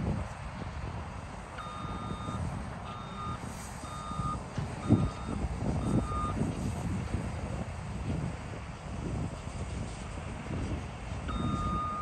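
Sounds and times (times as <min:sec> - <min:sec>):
low engine rumble: 0:00.0 - 0:12.0
reversing alarm beeping: 0:01.6 - 0:06.4, 0:11.3 - 0:12.0.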